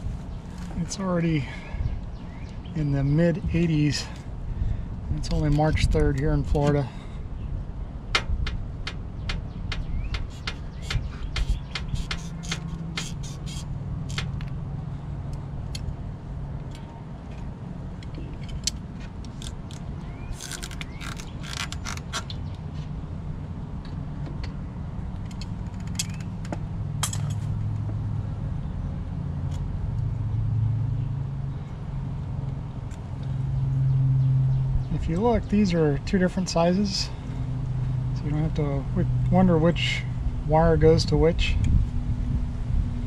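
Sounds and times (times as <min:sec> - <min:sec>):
tool clicking on metal parts: 0:08.2 - 0:14.5, 0:25.2 - 0:27.4.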